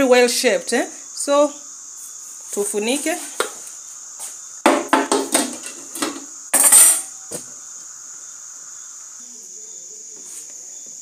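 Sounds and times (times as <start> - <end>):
metal cookware clattering: 5.0 - 7.1.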